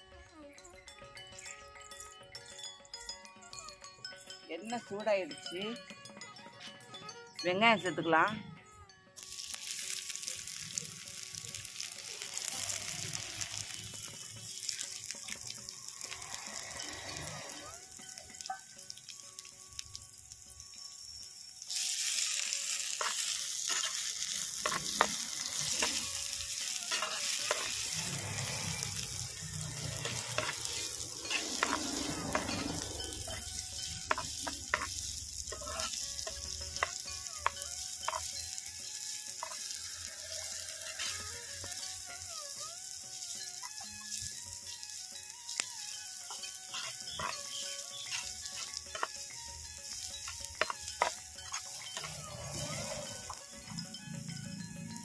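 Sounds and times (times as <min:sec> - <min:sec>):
onions sizzling in hot oil: 0:09.2 - 0:55.0
metal spatula scraping a pot: 0:21.7 - 0:38.3, 0:39.2 - 0:42.0, 0:45.8 - 0:53.8.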